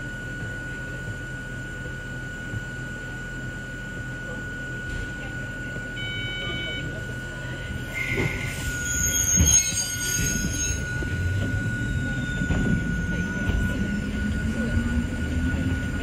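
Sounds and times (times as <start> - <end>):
steady high tone: 6.0 - 16.0
train wheel squeal: 7.6 - 16.0.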